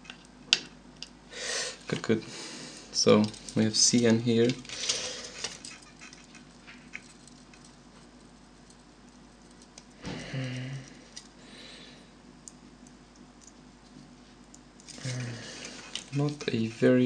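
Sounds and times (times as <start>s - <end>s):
light clicks and handling noise: 3.0s - 11.4s, 12.4s - 17.0s
low hummed voice: 10.0s - 11.3s, 14.9s - 17.0s.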